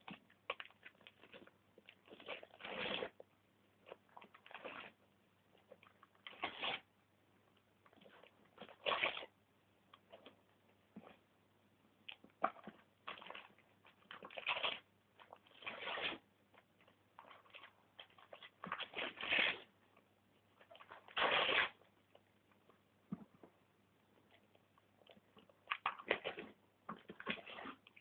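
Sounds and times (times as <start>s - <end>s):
wrapping paper crinkling and tearing: 20.8s - 21.8s.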